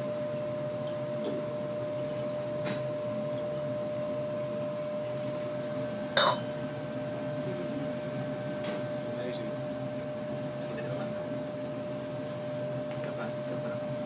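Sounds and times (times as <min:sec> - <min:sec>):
magnetic stirrer hum: 0:00.0 - 0:14.0.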